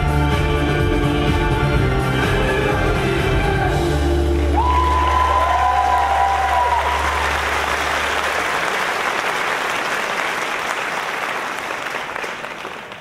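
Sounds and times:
song music: 0.0s - 7.4s
audience applauding: 4.4s - 13.0s.

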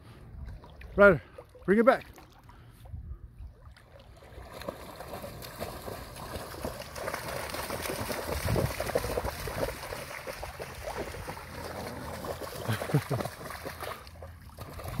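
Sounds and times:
dog splashing through shallow water: 3.6s - 15.0s.

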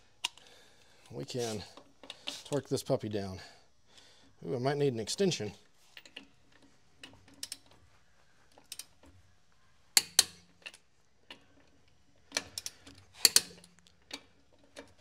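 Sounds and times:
metal clicks and clinks: 5.9s - 7.8s, 10.0s - 15.0s
torque wrench clicking: 12.3s - 13.8s.

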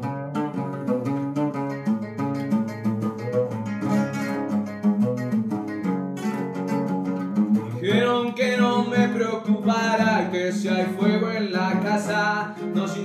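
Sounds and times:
bandola strummed and picked: 0.0s - 13.0s
man's voice: 7.6s - 13.0s.

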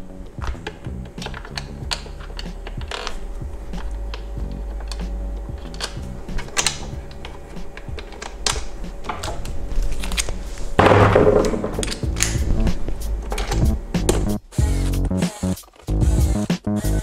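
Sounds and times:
screws clicking into plastic housing: 0.4s - 10.3s, 11.7s - 12.5s.

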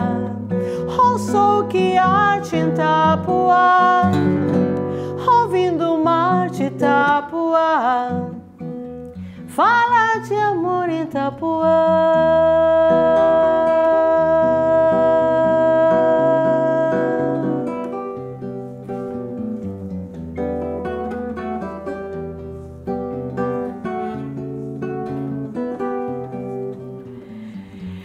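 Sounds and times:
woman singing: 0.0s - 8.5s, 9.4s - 18.3s
classical guitar playing: 0.0s - 28.0s.

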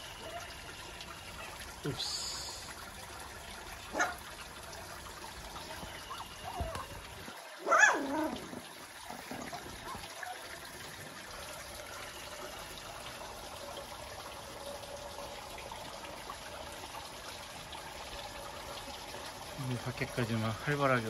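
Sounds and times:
puppy yelping: 7.6s - 8.5s.

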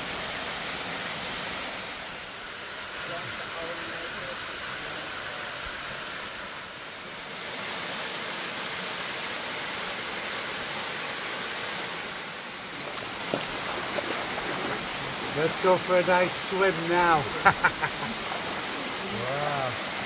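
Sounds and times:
waterfall rushing: 0.0s - 20.0s.

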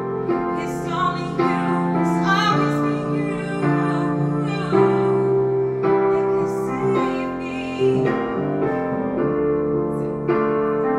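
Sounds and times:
piano accompaniment: 0.0s - 10.9s
woman singing into microphone: 0.5s - 8.8s.

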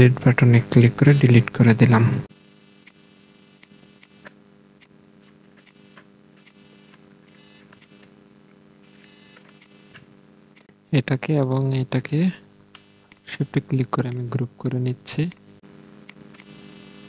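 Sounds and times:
faint electrical hum: 0.0s - 17.0s
computer mouse clicking: 13.1s - 13.3s.

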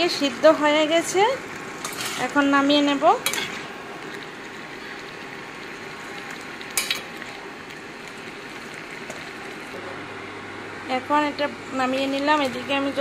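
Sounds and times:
pans simmering hiss: 0.0s - 13.0s.

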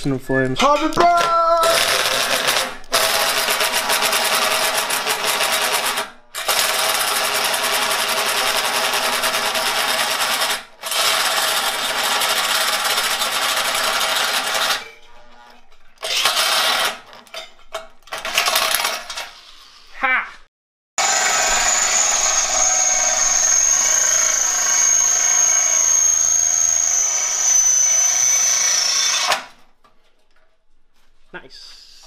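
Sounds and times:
electric drill cutting steel: 1.6s - 14.8s, 16.0s - 17.0s, 21.0s - 29.6s.

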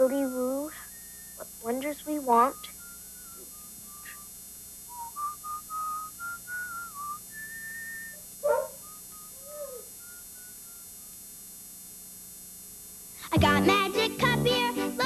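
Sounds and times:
hand-held whistle tune: 0.1s - 1.5s, 2.3s - 8.2s, 8.8s - 11.0s
dog barking: 8.4s - 8.8s
dog whining: 8.4s - 10.0s.

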